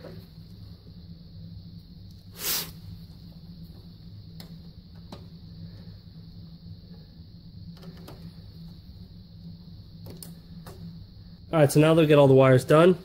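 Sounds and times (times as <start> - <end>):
steady low hum: 0.0 - 13.0
screwdriver scraping hiss: 2.1 - 3.2.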